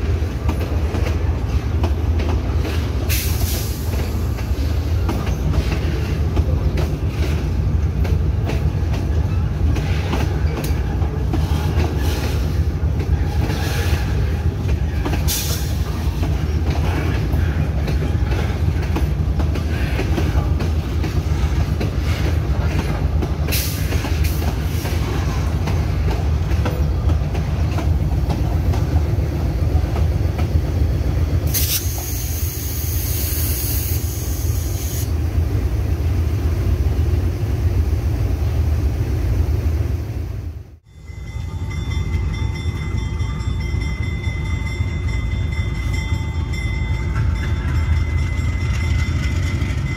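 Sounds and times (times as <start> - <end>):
train wheels rumbling on rail: 0.0 - 49.9.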